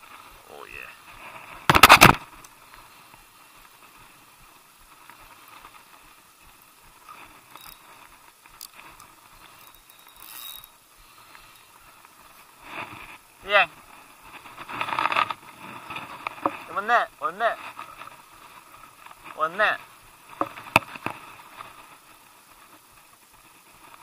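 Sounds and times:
fishing reel drag clicking: 7.5 - 7.9, 8.6 - 11.8
faint clicks from handling rod: 8.4 - 12.1.

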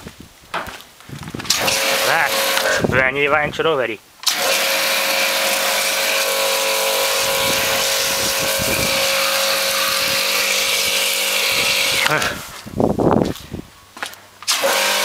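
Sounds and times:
pressure washer jet on sheet metal: 1.5 - 2.9, 4.2 - 12.5, 14.5 - 15.0.

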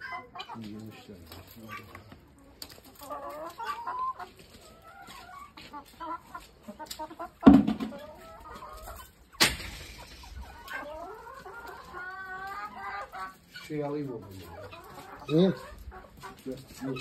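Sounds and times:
hens clucking: 0.0 - 17.0
loud thump: 7.4 - 8.0
sharp knock: 7.4 - 8.0, 9.4 - 9.8.

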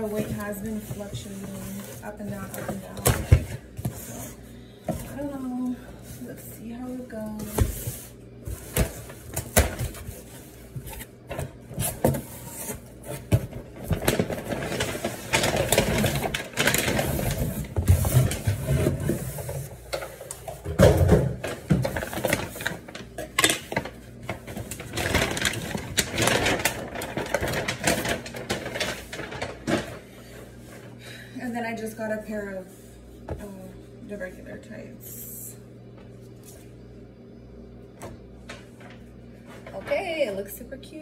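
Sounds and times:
packaging rustling: 7.5 - 19.6, 21.4 - 30.9.

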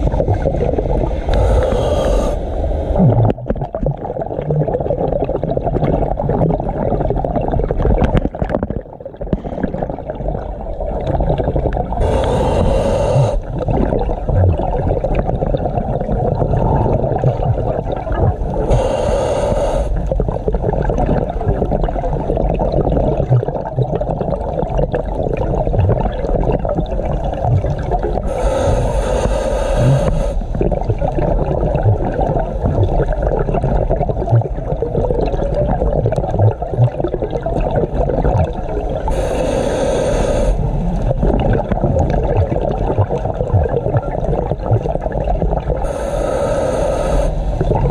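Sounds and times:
underwater rush and bubbles: 0.0 - 47.9
hissing regulator breath: 1.2 - 3.0, 12.0 - 13.5, 18.6 - 20.0, 28.3 - 30.5, 39.1 - 40.7, 45.8 - 47.6.

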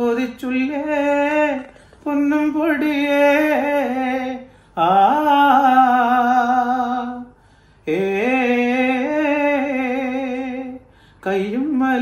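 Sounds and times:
man singing unaccompanied: 0.0 - 12.0
breath: 1.7 - 2.0, 4.5 - 4.8, 7.3 - 7.9, 10.8 - 11.2.

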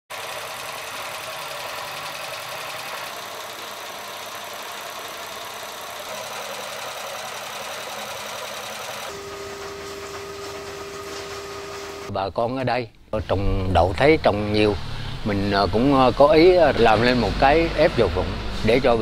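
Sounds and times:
oil press motor and belt chatter: 0.1 - 12.1.

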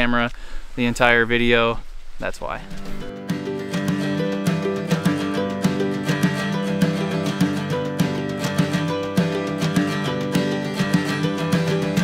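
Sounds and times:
acoustic guitar strumming: 2.6 - 12.0.

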